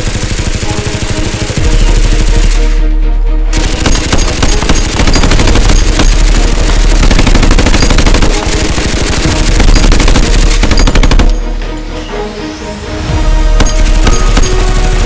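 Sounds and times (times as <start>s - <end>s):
rapid gunfire sound effect: 0.0s - 2.6s, 3.6s - 11.4s, 13.6s - 15.0s
background music: 0.0s - 15.0s.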